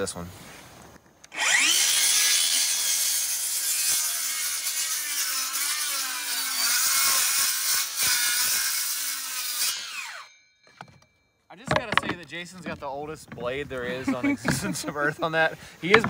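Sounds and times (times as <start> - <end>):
circular saw cutting wood: 1.3 - 11.0, 11.7 - 16.0.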